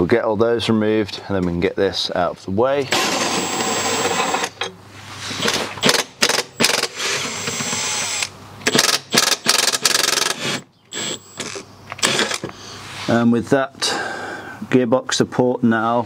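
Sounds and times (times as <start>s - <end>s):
cordless ratchet whirring: 5.4s - 12.5s.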